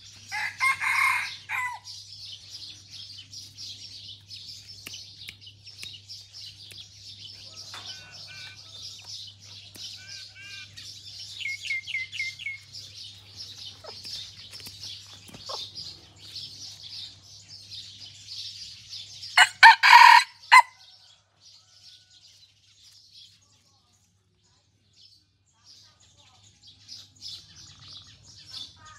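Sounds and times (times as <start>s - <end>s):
rooster crowing: 0.3s - 1.9s, 7.4s - 9.1s, 19.4s - 20.8s.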